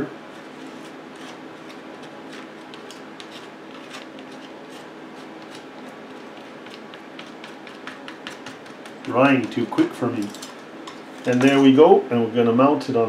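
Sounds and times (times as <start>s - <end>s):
low steady hum: 0.0s - 13.0s
fingers rubbing paper on board: 0.3s - 9.9s.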